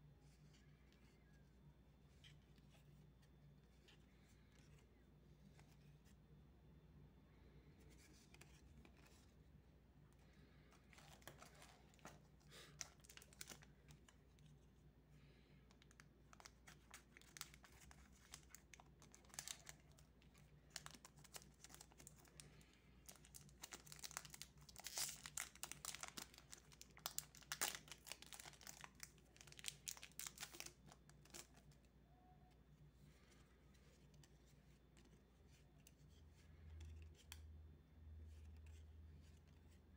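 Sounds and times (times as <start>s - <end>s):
cards being handled: 7.4s - 39.9s
foil wrapper crinkling and tearing: 23.1s - 31.5s.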